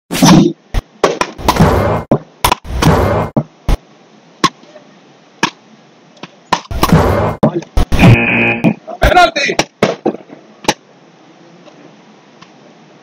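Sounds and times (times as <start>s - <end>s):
wooden rackets hitting ball: 1.0s - 3.5s, 6.2s - 7.7s.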